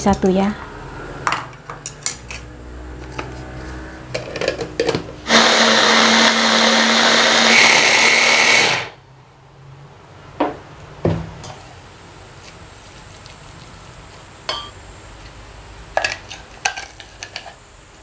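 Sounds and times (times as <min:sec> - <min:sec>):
high motor whine: 0:05.2 - 0:09.0.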